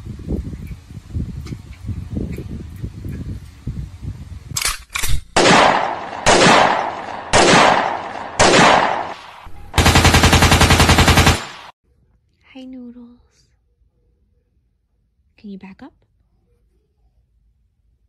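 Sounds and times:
single gunshots: 5.0s - 11.7s
machine-gun fire: 5.4s - 11.8s.

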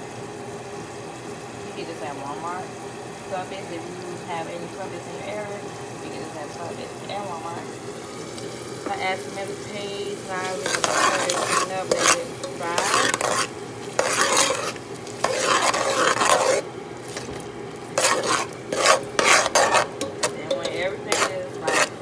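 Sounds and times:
food sizzling in oil: 0.0s - 22.0s
spoon scraping a pan: 8.8s - 22.0s.

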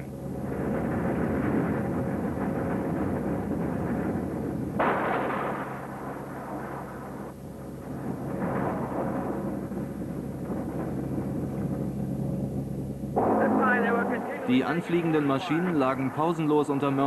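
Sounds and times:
turboprop engines roaring: 0.0s - 17.0s
sudden rush of noise: 13.2s - 16.6s.

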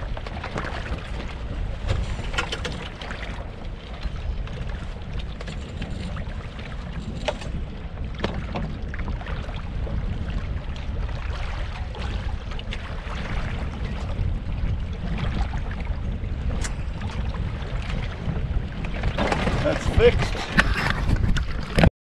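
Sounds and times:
water along boat hull: 0.0s - 21.9s
wind on microphone: 0.0s - 21.9s
rigging knocks and clicks: 0.2s - 3.1s, 7.0s - 7.6s, 8.2s - 8.7s.

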